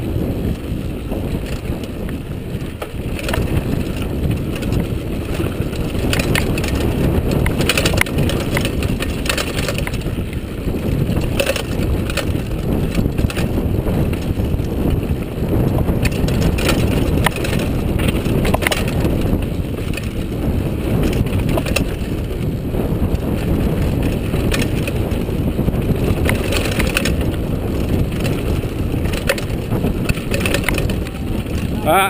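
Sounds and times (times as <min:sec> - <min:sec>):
bike rattling over bumps: 0:00.0 - 0:32.0
bike tyres rumbling on dirt: 0:00.0 - 0:32.0
wind on microphone: 0:00.0 - 0:32.0.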